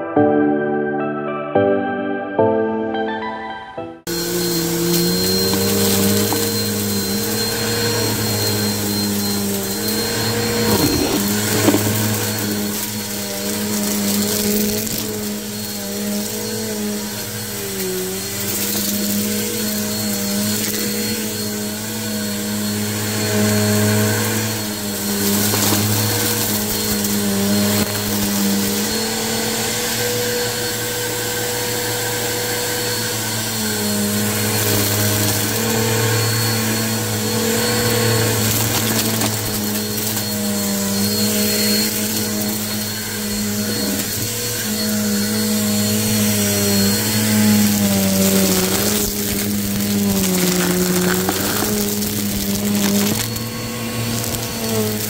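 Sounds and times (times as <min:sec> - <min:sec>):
vacuum cleaner motor hum: 0:04.0 - 0:55.0
thin high whine: 0:04.1 - 0:55.0.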